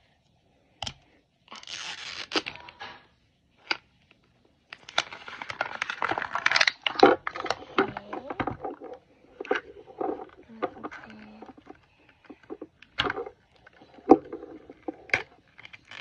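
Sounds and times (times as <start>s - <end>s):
plastic wrap crinkling: 4.8s - 16.0s.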